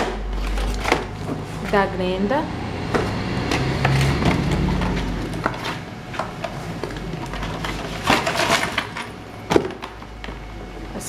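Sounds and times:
cardboard rustling: 0:00.0 - 0:01.9, 0:02.9 - 0:10.6
cardboard clicks and scrapes: 0:02.9 - 0:10.0.

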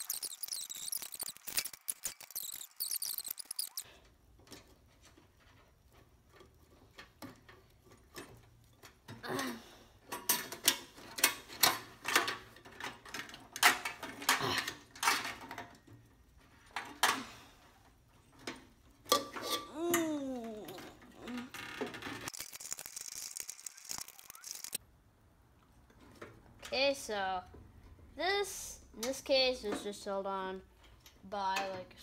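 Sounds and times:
high squeaks: 0:00.0 - 0:03.9, 0:21.3 - 0:24.8
clicks and rattles of handled parts: 0:00.0 - 0:09.2, 0:10.0 - 0:24.8.

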